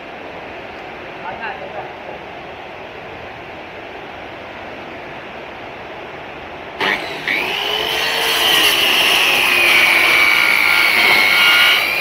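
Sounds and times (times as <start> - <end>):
circular saw cutting wood: 6.8 - 12.0.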